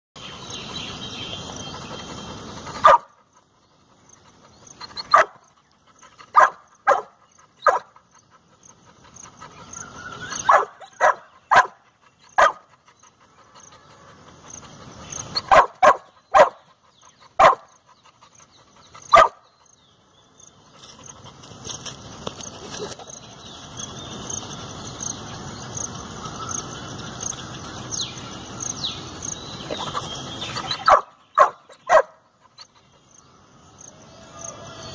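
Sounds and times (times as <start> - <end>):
dog barking: 2.8 - 3.1, 5.1 - 5.4, 6.3 - 8.0, 10.4 - 11.8, 12.4 - 12.7, 15.4 - 16.6, 17.4 - 17.7, 19.1 - 19.4, 30.8 - 32.2.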